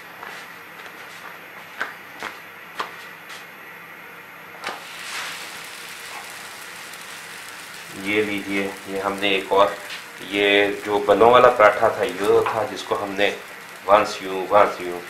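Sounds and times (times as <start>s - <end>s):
dough hissing on griddle: 4.6s - 15.0s.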